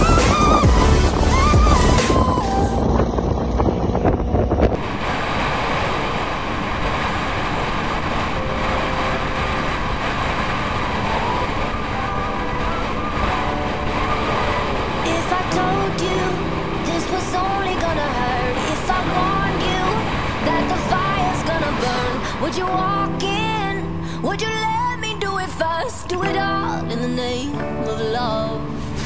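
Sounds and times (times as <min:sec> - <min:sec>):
motorcycle engine cruising: 0:00.0 - 0:04.9
road and wind rush: 0:00.0 - 0:29.0.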